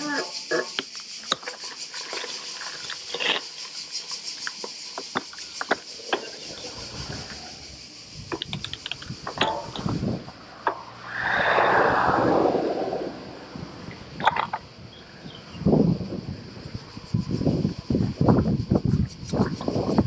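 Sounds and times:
steady high hiss: 0.0s - 15.5s
bike clicking and rattling: 1.2s - 10.1s
wind rumble on microphone: 6.4s - 20.0s.

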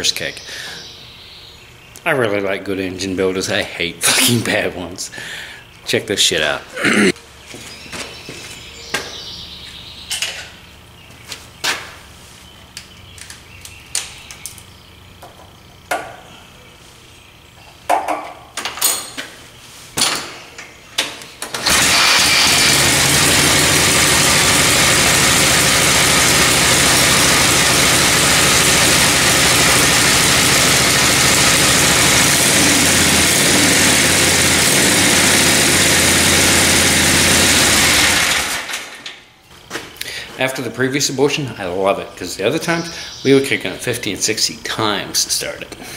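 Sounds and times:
kick-start knocks and clanks: 21.4s - 39.2s
motorcycle engine running: 21.6s - 38.7s.

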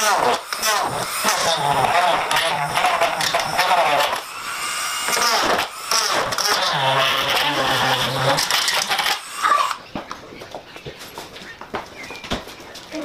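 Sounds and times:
cordless drill driving screws: 0.0s - 9.8s.

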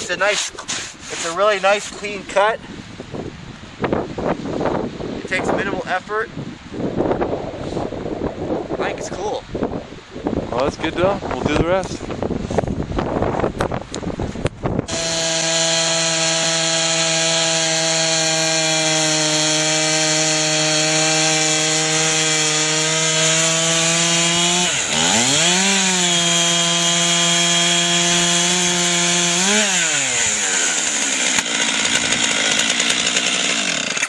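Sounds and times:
chainsaw cutting log: 0.0s - 2.1s, 14.9s - 34.0s.

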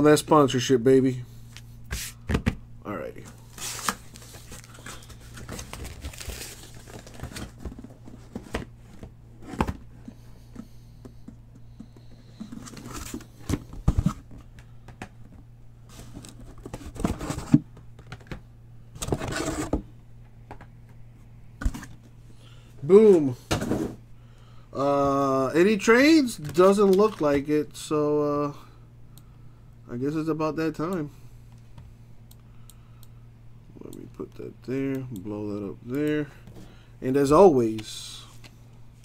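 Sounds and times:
cardboard boxes rustling and scraping: 3.4s - 10.2s, 12.4s - 14.4s, 15.9s - 17.7s, 19.0s - 19.8s.

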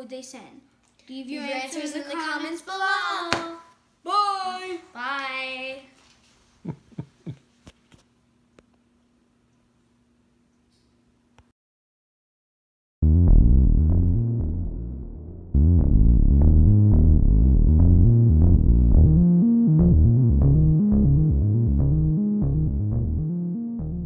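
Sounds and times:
synthesizer keyboard music: 13.0s - 24.0s.

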